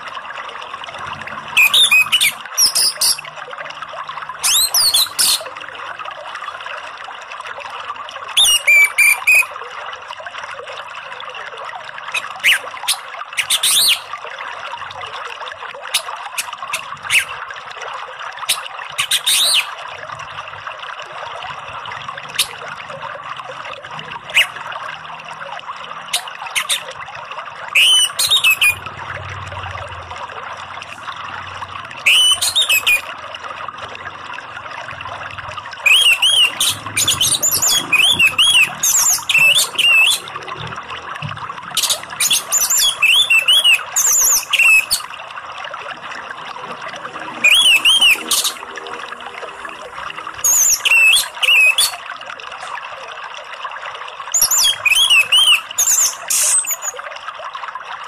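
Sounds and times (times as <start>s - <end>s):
flowing water: 0.0s - 58.0s
bird singing whistled phrases: 1.6s - 3.2s, 4.4s - 5.4s, 8.4s - 9.5s, 13.4s - 14.0s, 19.0s - 19.7s, 27.8s - 28.8s, 32.1s - 33.1s, 35.8s - 40.3s, 41.8s - 45.1s, 47.4s - 48.6s, 50.4s - 52.0s, 54.4s - 57.0s.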